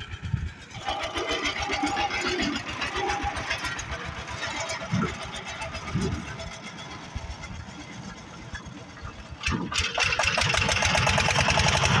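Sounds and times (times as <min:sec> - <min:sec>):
diesel engine chugging: 0:00.0 - 0:12.0.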